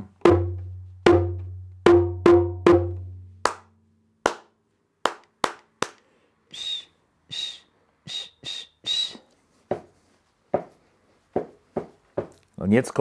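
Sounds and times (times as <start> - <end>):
short breathy whistled toots: 6.4 - 9.4.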